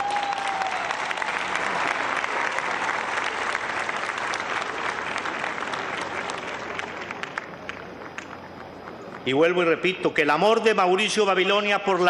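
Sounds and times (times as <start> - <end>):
large crowd applauding: 0.0 - 9.4.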